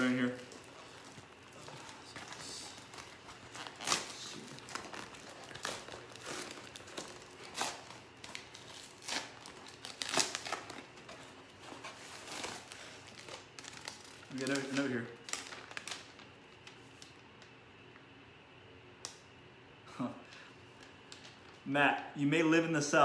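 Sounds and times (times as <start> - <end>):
envelope tearing and crinkling: 0.0 - 17.2.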